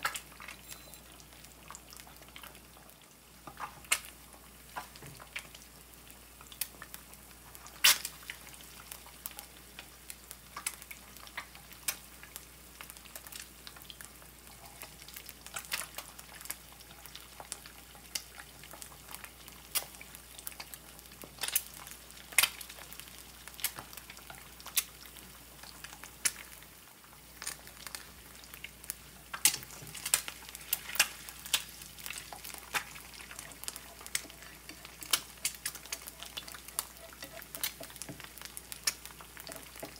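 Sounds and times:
eggs sizzling in oil: 0.0 - 39.9
oil crackling and popping: 0.0 - 39.9.

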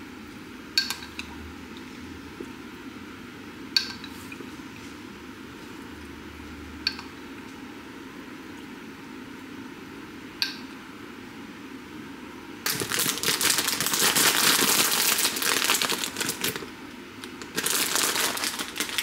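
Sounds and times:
crinkling and rustling: 12.7 - 19.0.

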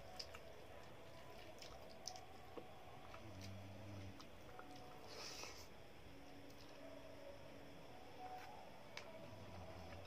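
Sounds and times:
soft clicks of hand eating: 1.5 - 3.5.

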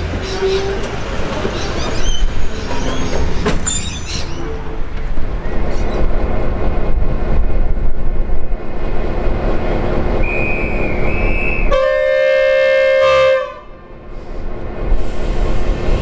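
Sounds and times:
diesel locomotive rumbling: 0.0 - 16.0
thin high whistle: 10.2 - 11.7
locomotive horn blast: 10.5 - 14.0.

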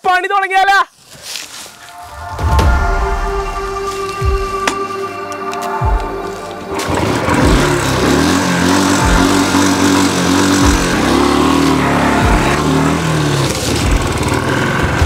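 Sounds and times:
motorcycle engine pulling away: 6.6 - 15.0.

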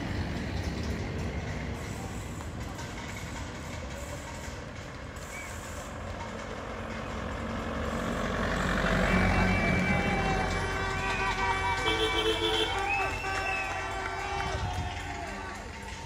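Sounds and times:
car engine approaching: 0.0 - 15.8.

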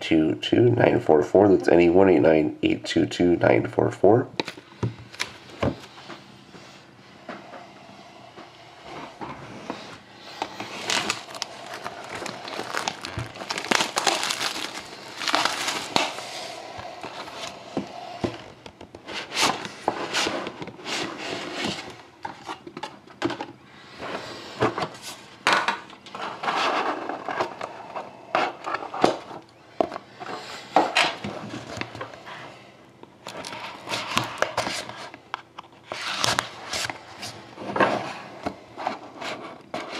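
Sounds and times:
cardboard box handling: 10.3 - 16.2
plastic wrap tearing and crackling: 10.3 - 17.5.

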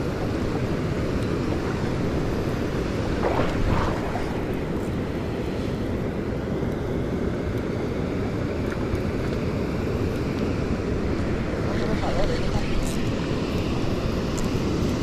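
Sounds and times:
wind buffeting microphone: 0.0 - 6.3.

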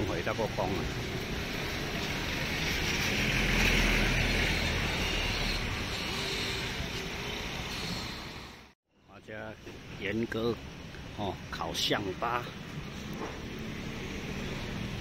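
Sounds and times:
truck and scooter engines passing: 0.0 - 8.7, 12.2 - 15.0.

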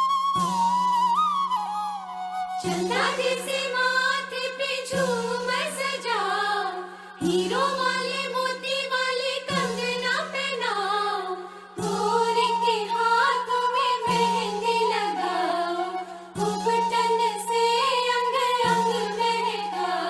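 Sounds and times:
person singing repeating phrases: 2.7 - 15.7.

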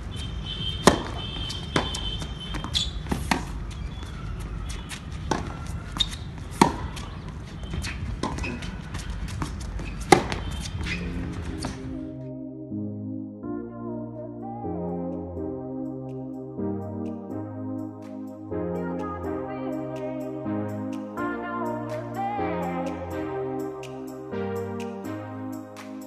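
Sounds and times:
balls bouncing on hard court: 0.7 - 12.0
tennis balls struck by rackets: 0.8 - 11.9
synthesizer music: 10.8 - 26.0.

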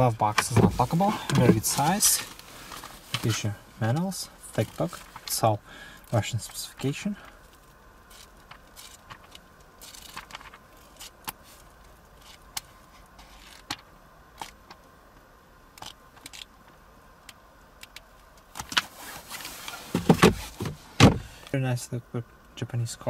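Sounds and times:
book pages turning: 0.3 - 3.5
book shut and set down: 0.4 - 2.1, 19.9 - 21.3.

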